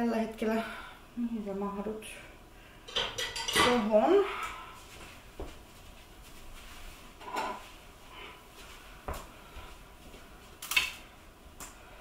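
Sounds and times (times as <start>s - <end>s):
dishes clattering into dishwasher rack: 2.9s - 3.9s.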